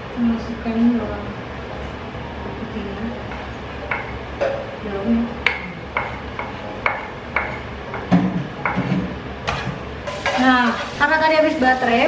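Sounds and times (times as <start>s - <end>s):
spatula knocking on wood and pan: 3.3s - 4.7s, 5.4s - 10.8s.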